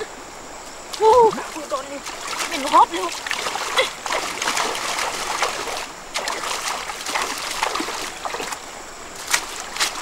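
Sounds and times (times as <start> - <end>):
stream running: 0.0 - 10.0
hands splashing in water: 2.0 - 8.6, 9.2 - 10.0.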